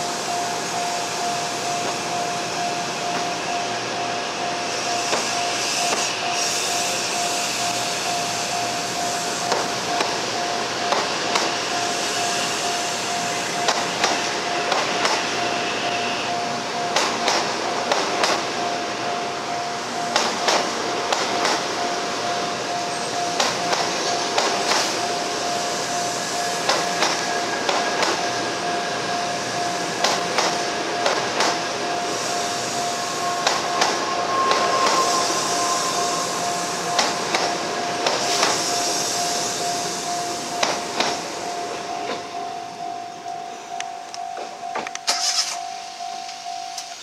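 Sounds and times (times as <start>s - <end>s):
train wheels clacking over rails: 0.0s - 42.4s
level crossing alarm tone: 24.5s - 47.0s.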